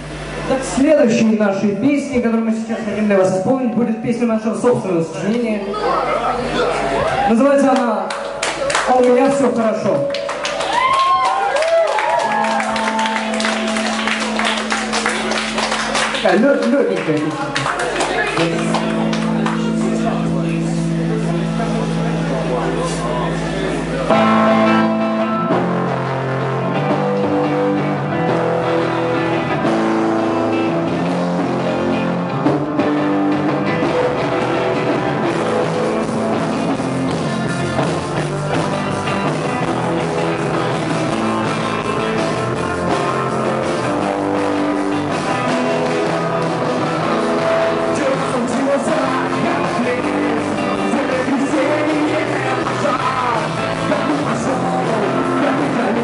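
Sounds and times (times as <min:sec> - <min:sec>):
bass guitar: 0:00.0 - 0:56.0
electric guitar: 0:00.0 - 0:56.0
drums: 0:08.1 - 0:56.0
man singing: 0:45.8 - 0:56.0.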